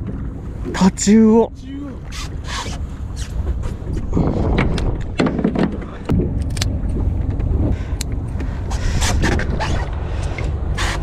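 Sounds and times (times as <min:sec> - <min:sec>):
boat engine rumble: 0:00.0 - 0:11.0
fishing gear clicks and knocks: 0:04.5 - 0:08.5.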